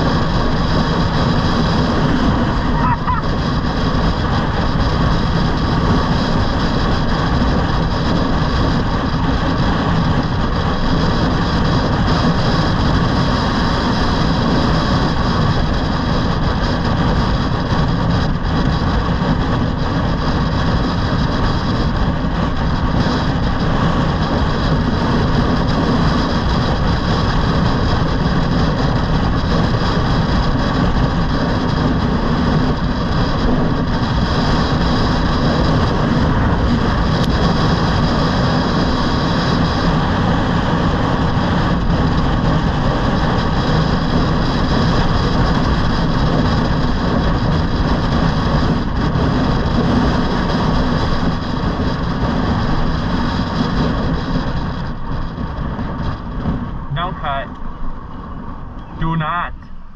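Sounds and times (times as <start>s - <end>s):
high-pitched motor whine: 0.0s - 40.0s
wind buffeting microphone: 0.0s - 59.9s.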